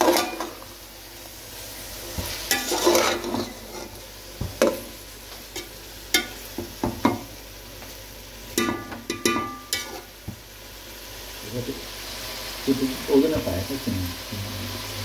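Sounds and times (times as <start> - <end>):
metal utensil scraping a pan: 0.0 - 0.6, 2.2 - 4.0, 8.6 - 10.2
food sizzling: 0.0 - 15.0.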